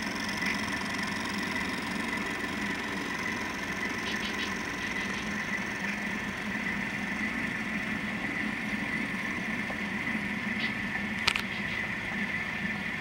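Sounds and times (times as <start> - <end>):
model train motor hum: 0.0 - 13.0
sharp click: 10.6 - 11.6.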